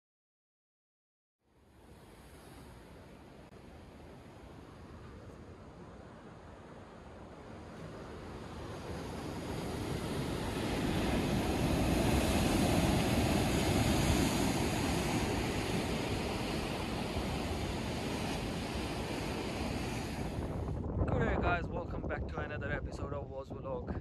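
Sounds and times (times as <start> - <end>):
surf breaking on rocky shore: 7.2 - 21.6.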